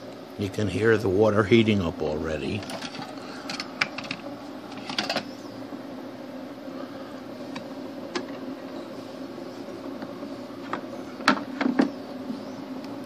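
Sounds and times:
coffee maker humming: 0:00.0 - 0:13.0.

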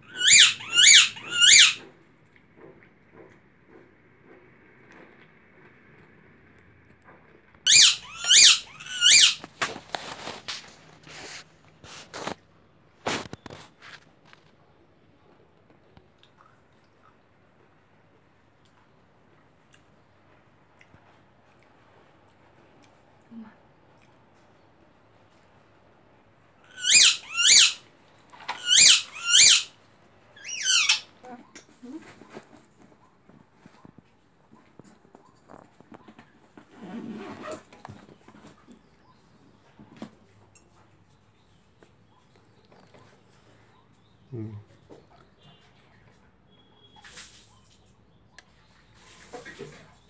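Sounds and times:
high-pitched squeaks: 0:00.0 - 0:01.9, 0:07.7 - 0:09.5, 0:28.5 - 0:29.7.

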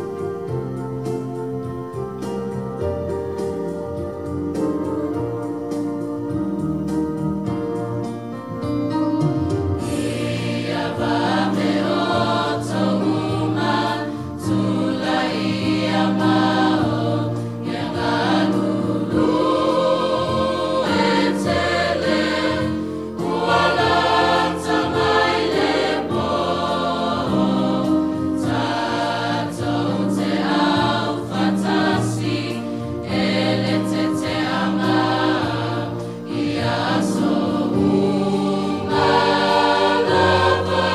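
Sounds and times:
sustained keyboard chords: 0:00.0 - 0:40.9
choir singing a hymn: 0:09.7 - 0:40.9.

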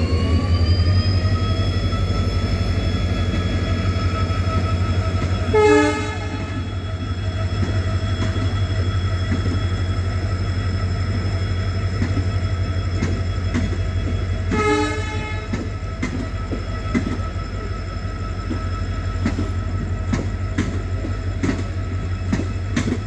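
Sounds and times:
diesel locomotive humming: 0:00.0 - 0:23.0
train coaches rolling past: 0:00.0 - 0:23.0
train horn blasts: 0:05.4 - 0:06.7, 0:14.5 - 0:15.6
wheels clicking over rail joints: 0:19.2 - 0:23.0.

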